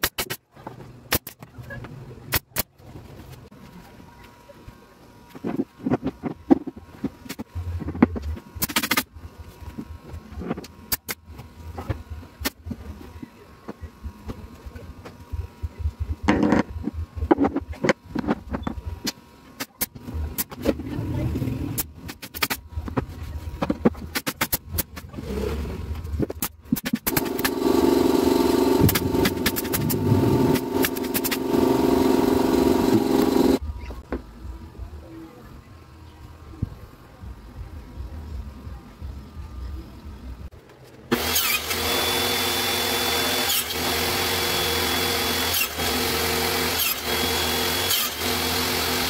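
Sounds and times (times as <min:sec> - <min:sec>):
motor drone: 0:27.1 - 0:34.0, 0:41.1 - 0:49.0.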